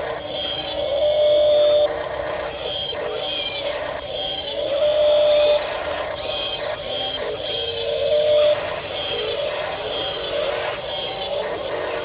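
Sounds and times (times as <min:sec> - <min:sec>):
toy electric motor whining: 0:00.0 - 0:12.0.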